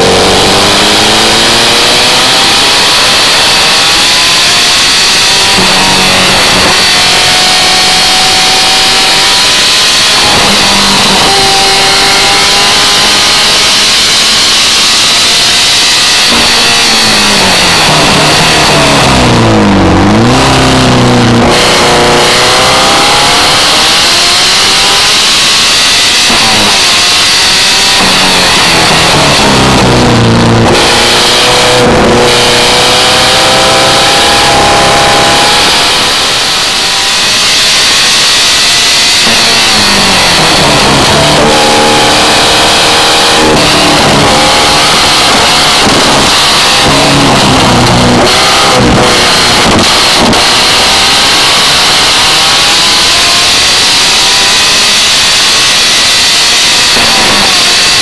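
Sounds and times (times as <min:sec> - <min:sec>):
sports car engine revving: 0:00.0 - 0:58.0.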